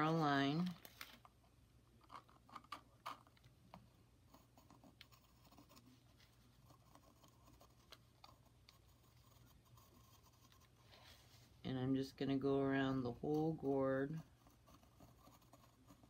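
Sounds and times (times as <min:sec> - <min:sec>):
pencil scratching on gourd shell: 0:04.2 - 0:11.6, 0:13.0 - 0:16.0.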